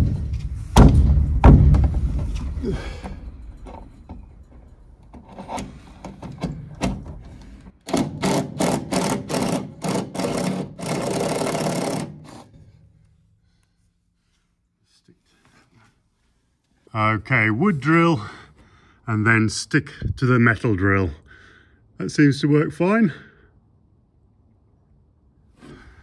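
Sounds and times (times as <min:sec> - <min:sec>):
cordless drill boring into wood: 0:07.9 - 0:12.4.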